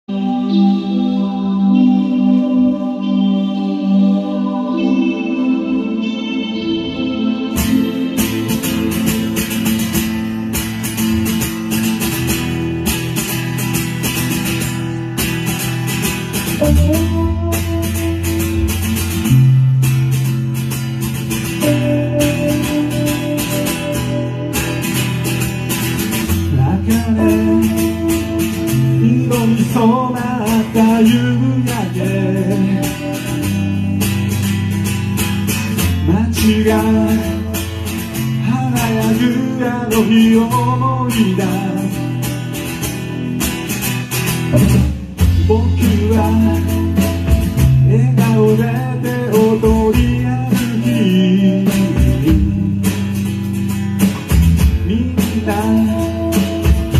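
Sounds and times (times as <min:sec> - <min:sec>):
electric guitar: 0:00.0 - 0:56.9
bass notes: 0:00.1 - 0:56.9
strummed acoustic guitar: 0:06.0 - 0:56.9
drums: 0:06.9 - 0:56.9
man singing: 0:26.4 - 0:33.9, 0:35.9 - 0:42.6, 0:45.2 - 0:53.1, 0:54.7 - 0:56.9.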